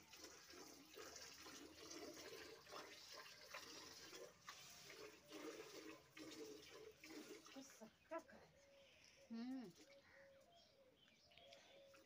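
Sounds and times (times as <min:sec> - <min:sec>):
animal slurping water from pail: 0:00.0 - 0:07.9.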